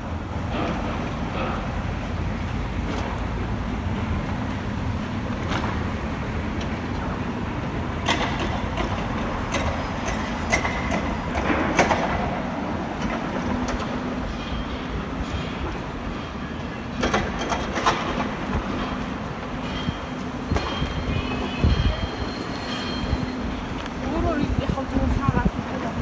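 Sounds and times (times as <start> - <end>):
clanks of metal and concrete: 8.0 - 12.4, 13.0 - 24.0.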